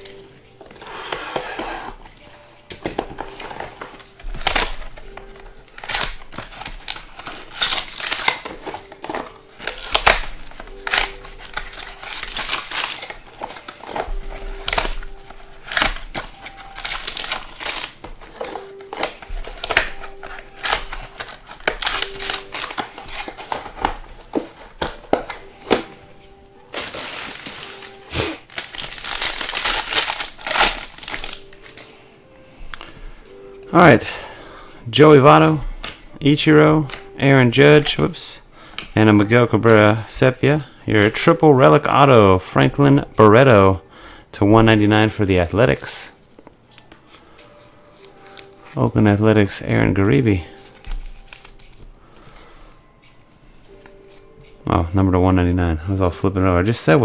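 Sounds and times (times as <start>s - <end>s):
plastic wrap and cardboard rustling: 0.0s - 32.0s, 45.2s - 54.8s
foil pack torn open: 4.0s - 24.3s, 26.7s - 31.8s.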